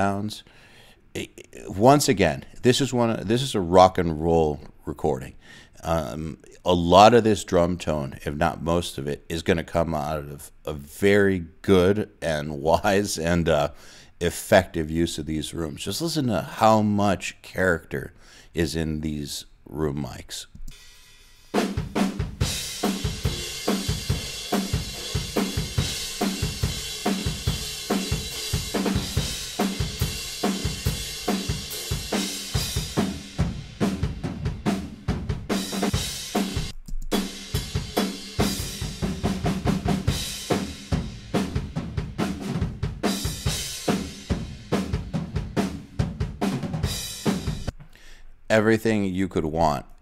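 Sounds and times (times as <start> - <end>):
cymbals: 20.7 - 45.8
rock drum kit playing: 21.5 - 47.8
snare drum: 21.6 - 47.7.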